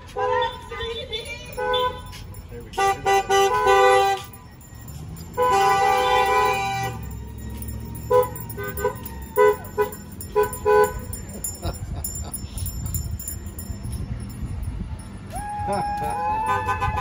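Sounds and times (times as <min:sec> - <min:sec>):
car horns honking: 0:00.0 - 0:11.4, 0:16.0 - 0:17.0.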